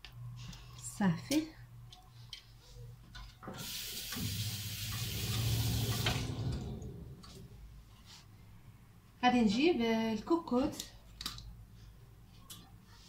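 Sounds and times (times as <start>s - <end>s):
water running from a tap: 3.6s - 6.7s.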